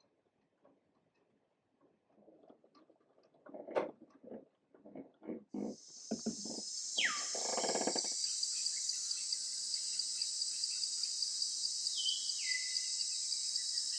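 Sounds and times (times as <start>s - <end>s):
insect chorus: 5.6s - 13.9s.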